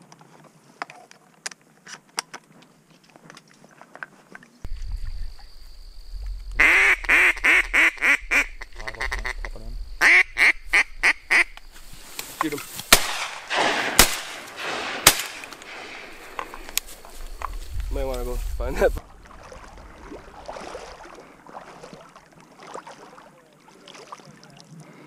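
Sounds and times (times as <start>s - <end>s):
low wind rumble: 4.7s - 12.2s, 12.9s - 21.5s
duck quacking: 6.6s - 11.6s
faint rustling and clicks: 11.5s - 12.9s, 15.4s - 18.6s.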